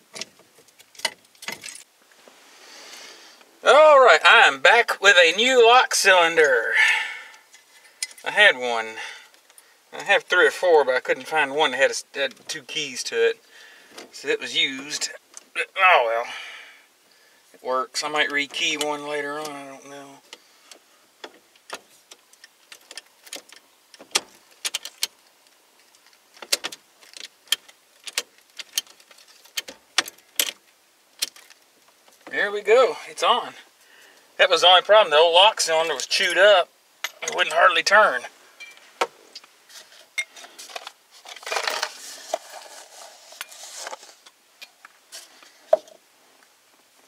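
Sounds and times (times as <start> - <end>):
paper cup rustling: 39.7 - 44.2.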